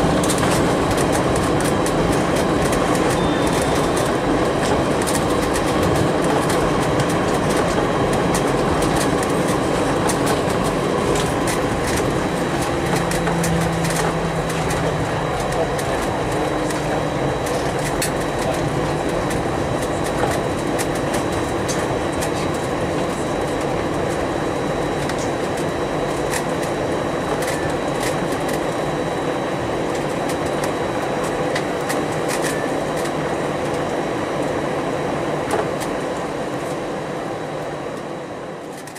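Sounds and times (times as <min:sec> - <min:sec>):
engines and rolling wheels rumble: 0:00.0 - 0:38.9
faint high whine: 0:03.0 - 0:04.2.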